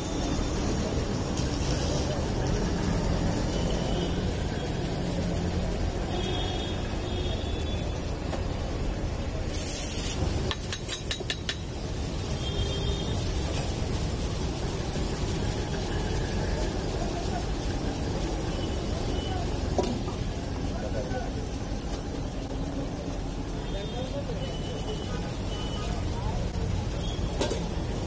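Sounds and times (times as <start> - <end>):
traffic noise: 0.0 - 28.0
short hiss: 9.5 - 10.2.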